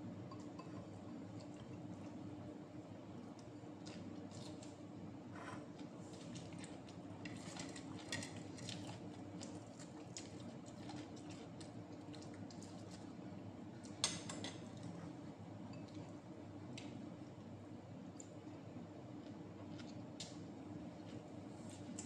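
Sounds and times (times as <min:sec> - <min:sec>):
low steady hum: 0:00.0 - 0:22.0
chewing: 0:06.2 - 0:13.1.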